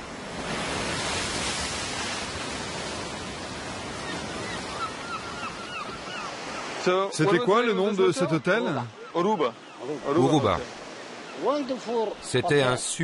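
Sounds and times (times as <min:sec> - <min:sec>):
surf washing onto beach: 0:00.0 - 0:09.0.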